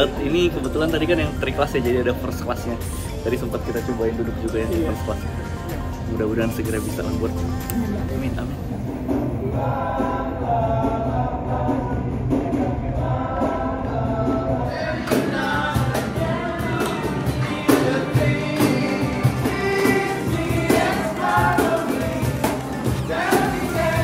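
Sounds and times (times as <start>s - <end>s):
acoustic guitars: 0.0s - 24.0s
cajon beats: 0.0s - 24.0s
group singing together: 7.5s - 24.0s.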